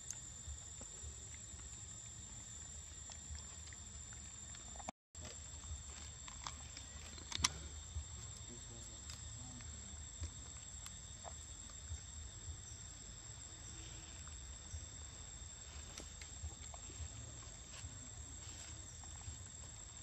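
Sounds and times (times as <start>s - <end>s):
high-pitched insect drone: 5.6s - 20.0s.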